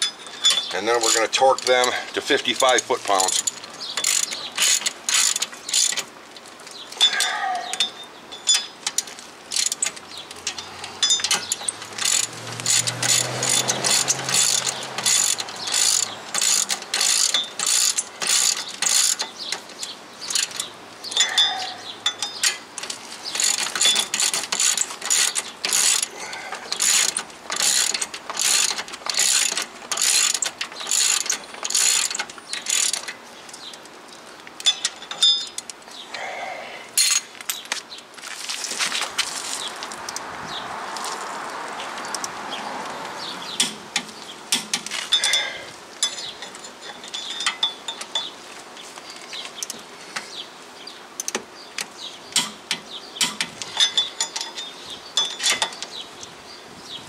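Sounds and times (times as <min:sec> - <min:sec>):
ratchet wrench clicking: 0:00.4 - 0:06.1, 0:08.5 - 0:19.7, 0:20.3 - 0:21.4, 0:22.0 - 0:26.1, 0:26.7 - 0:33.8.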